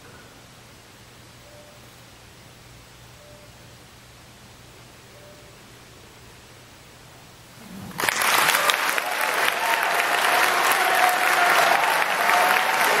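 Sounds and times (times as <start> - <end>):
audience applause: 7.9 - 13.0
held cheer: 8.0 - 13.0.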